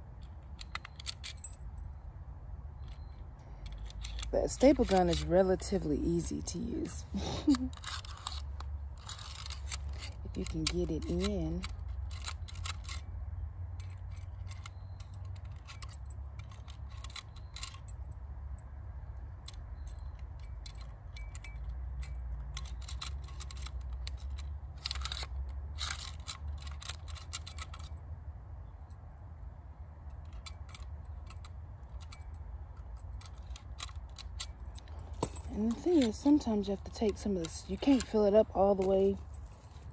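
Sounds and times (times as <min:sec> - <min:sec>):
staple gun metal clicks: 0:00.2 - 0:01.6, 0:02.8 - 0:06.3.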